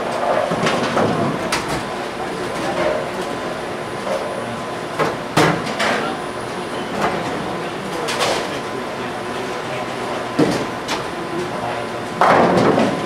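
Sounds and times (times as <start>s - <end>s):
bowling balls crashing into pins: 12.2s - 13.0s.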